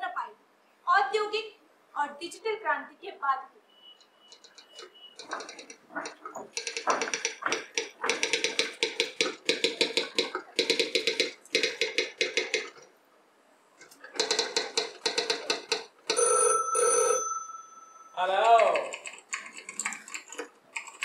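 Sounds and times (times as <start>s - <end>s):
telephone bell ringing: 16.1s - 18.3s
steady high tone: 16.7s - 18.3s.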